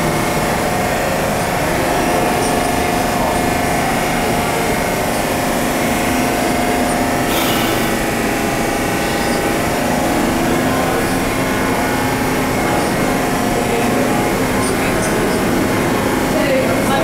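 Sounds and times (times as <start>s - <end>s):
subway train stopping: 0.0s - 17.0s
electrical whine: 3.0s - 9.7s
short air hiss: 7.3s - 8.1s.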